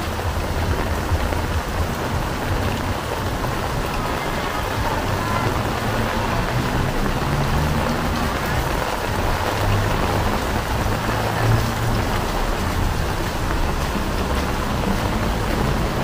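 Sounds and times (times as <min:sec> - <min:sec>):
rain falling on street: 0:00.0 - 0:16.0.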